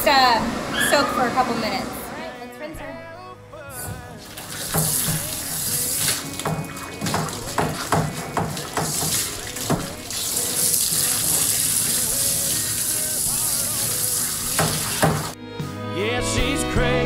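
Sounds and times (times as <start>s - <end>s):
water flowing: 3.8s - 15.4s
water splashing: 4.1s - 15.4s.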